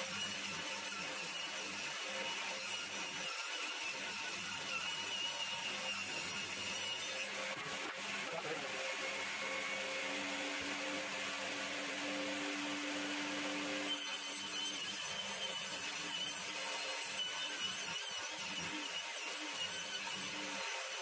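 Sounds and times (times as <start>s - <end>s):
saw ripping wood: 0.0s - 21.0s
table saw motor whine: 0.0s - 21.0s.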